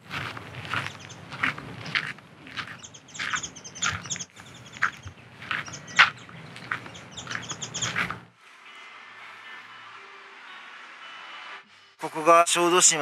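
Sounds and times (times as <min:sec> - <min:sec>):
footsteps walking: 0:00.0 - 0:08.3
small birds chirping: 0:00.1 - 0:08.2.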